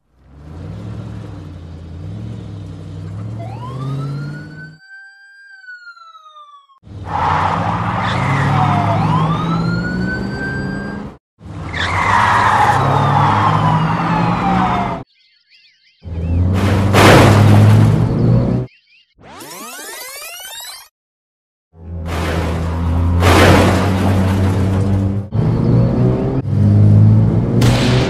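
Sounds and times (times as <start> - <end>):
car engine revving: 0.0 - 4.6
police siren wailing: 3.1 - 15.1.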